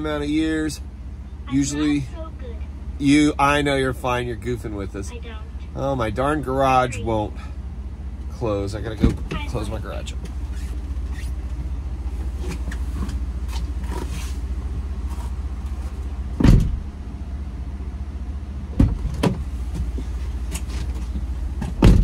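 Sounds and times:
car engine idling: 0.0s - 22.0s
loud thump: 16.4s - 16.9s, 21.6s - 22.0s
sharp knocks: 21.6s - 22.0s.

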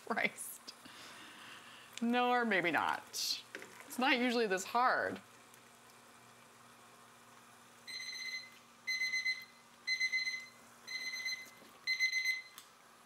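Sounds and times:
timer alarm trilling beeps: 7.9s - 12.6s.

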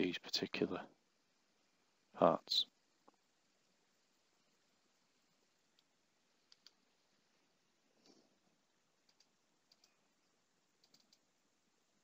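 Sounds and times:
faint quick clicks: 5.7s - 6.8s, 9.0s - 10.0s, 10.8s - 11.2s.

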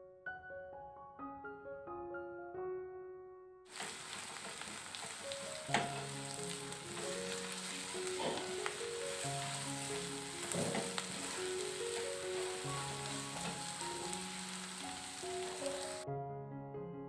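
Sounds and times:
food sizzling in a wok: 3.7s - 16.0s
soft background music: 4.2s - 17.0s
spatula knocking and scraping pan: 6.9s - 13.7s.

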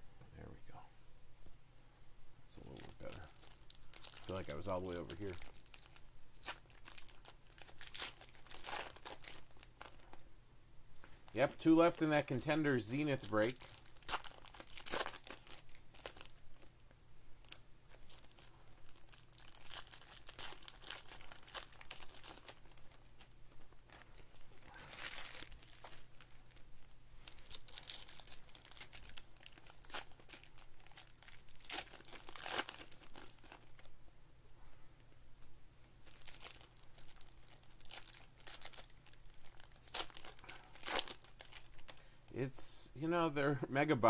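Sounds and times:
foil packs crinkling and tearing: 2.7s - 10.1s, 11.3s - 16.7s, 17.4s - 33.9s, 36.0s - 42.0s.

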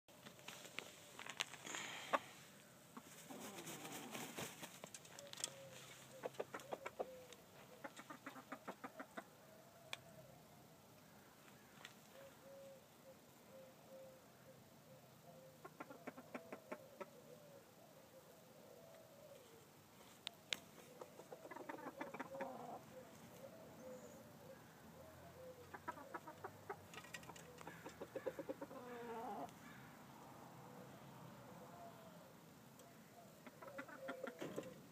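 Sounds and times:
soft continuous low call: 0.1s - 8.2s, 9.0s - 34.9s
rooster clucking: 3.0s - 4.5s, 5.5s - 9.4s, 15.6s - 17.2s, 20.9s - 23.0s, 25.6s - 29.5s, 33.4s - 34.8s.

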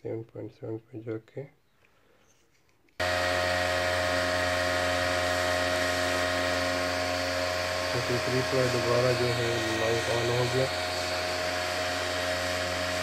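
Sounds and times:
cooling fan whining: 3.0s - 13.0s.

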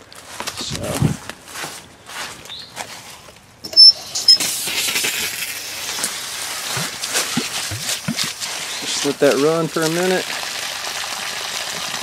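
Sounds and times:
water sputtering from hose: 4.2s - 12.0s
water spraying onto dry leaves: 4.5s - 12.0s.

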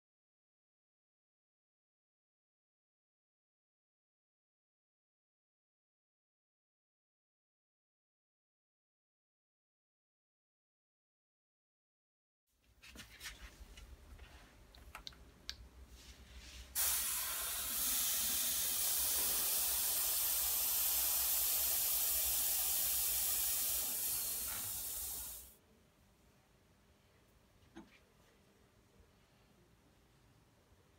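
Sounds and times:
compressed air hissing: 16.7s - 25.6s.

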